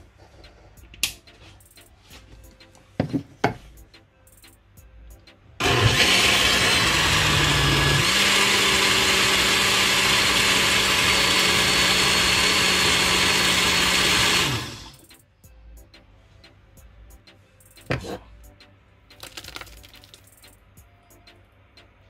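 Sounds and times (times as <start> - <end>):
electric blender running: 5.6 - 15.0.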